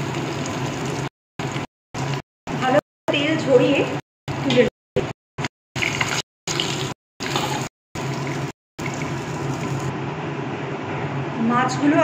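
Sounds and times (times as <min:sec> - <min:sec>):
hot oil sizzling: 0:00.0 - 0:02.2, 0:05.8 - 0:09.9.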